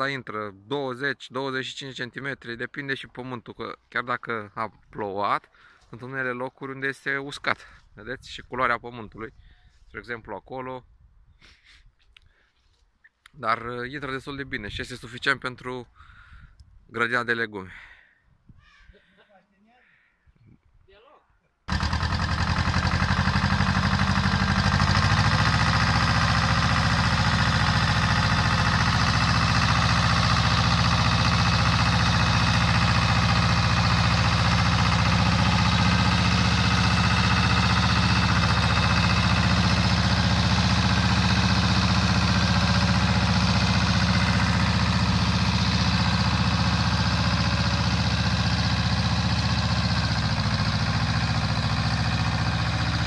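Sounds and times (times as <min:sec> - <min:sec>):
tractor engine running under load: 0:21.7 - 0:53.0.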